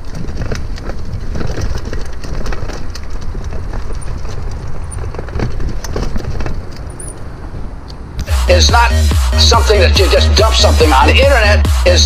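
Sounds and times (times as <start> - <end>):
mountain bike rattling: 0.0 - 8.1
wind rumble on microphone: 0.0 - 8.3.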